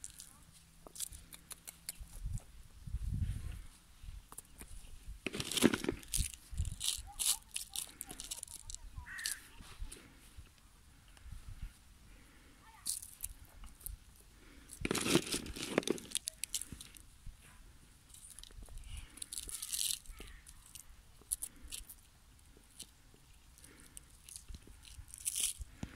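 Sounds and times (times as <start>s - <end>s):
birds crunching and tearing lettuce: 0.0s - 2.4s, 5.2s - 10.0s, 12.2s - 17.1s, 18.1s - 25.9s.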